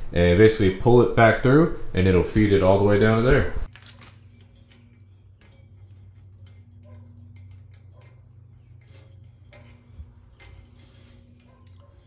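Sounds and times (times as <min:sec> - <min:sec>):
wire scraping through metal tube: 0:03.7 - 0:12.0.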